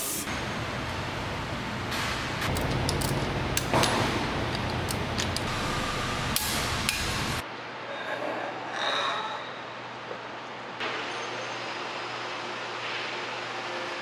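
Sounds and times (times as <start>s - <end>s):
workshop noise: 0.0s - 7.5s.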